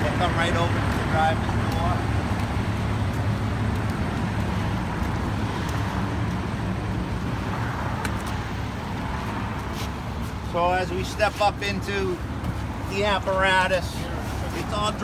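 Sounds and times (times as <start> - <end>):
diesel engine idling: 0.0 - 7.4.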